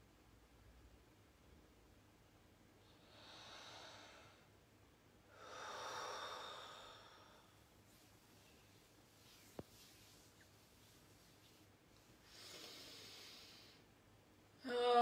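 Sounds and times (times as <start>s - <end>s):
person breathing deeply: 2.9s - 4.5s, 5.3s - 7.6s, 12.2s - 13.9s.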